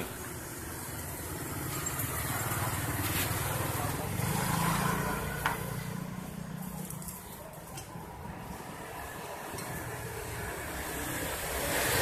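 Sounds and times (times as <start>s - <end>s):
vehicle engine passing: 0.0s - 7.2s.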